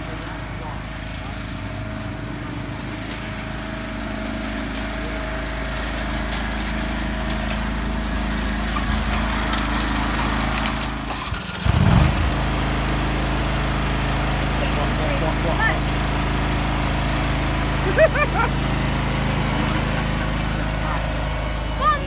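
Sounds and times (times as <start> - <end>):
lawn mower engine running: 0.0 - 22.0.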